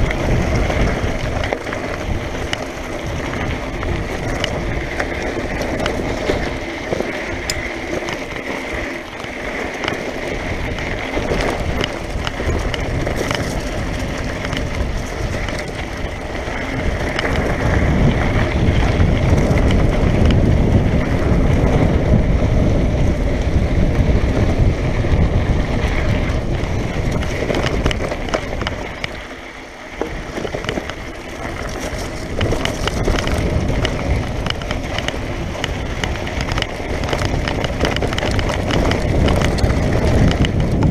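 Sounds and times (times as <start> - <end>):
bike rattling and clicking: 0.0 - 40.9
bike tyres rolling over stones: 0.0 - 40.9
wind rumbling on microphone: 0.0 - 40.9.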